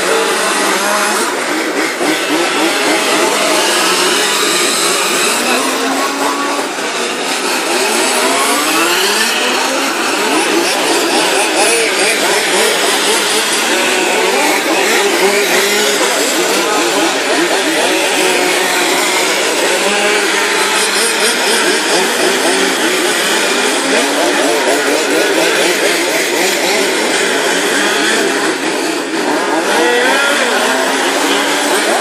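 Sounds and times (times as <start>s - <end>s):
small engines buzzing and revving: 0.0s - 32.0s.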